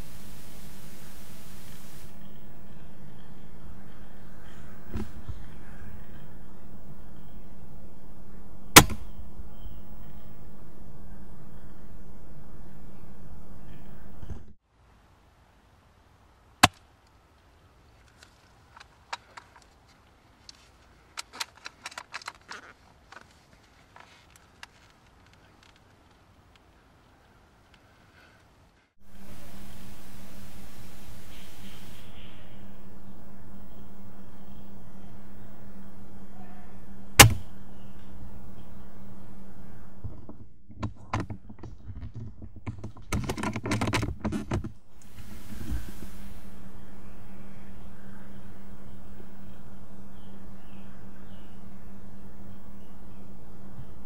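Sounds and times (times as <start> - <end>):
steady hiss with low hum: 0.0 - 40.6, 41.4 - 54.0
small clicks and rustles: 17.0 - 28.9, 40.0 - 46.4
sharp clicks and rattles: 21.2 - 23.3, 40.0 - 45.1
sharp clicks: 37.2 - 38.7.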